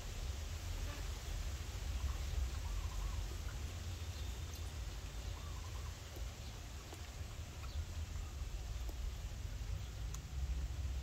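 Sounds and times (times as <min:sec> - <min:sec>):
faint ticks: 0:10.0 - 0:10.3.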